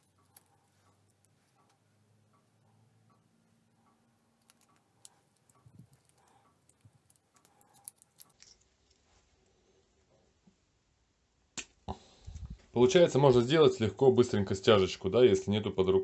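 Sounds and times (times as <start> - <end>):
plastic strip clicking and crinkling: 4.4 - 8.6.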